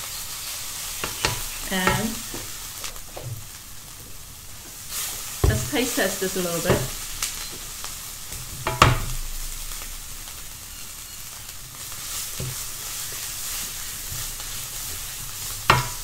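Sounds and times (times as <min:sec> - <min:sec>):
chili paste sizzling in oil: 0:00.0 - 0:16.0
spatula knocking against wok: 0:08.6 - 0:09.5, 0:15.1 - 0:16.0.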